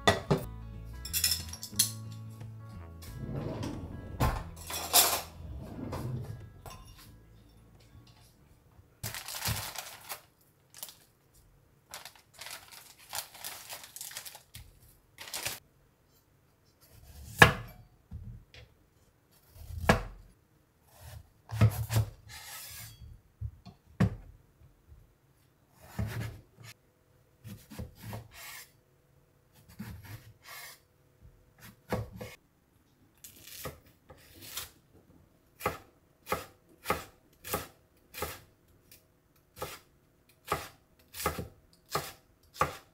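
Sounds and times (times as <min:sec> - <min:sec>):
plastic bag rustling: 0:09.0 - 0:11.2, 0:11.9 - 0:15.6
knife cutting vegetable: 0:33.3 - 0:34.8.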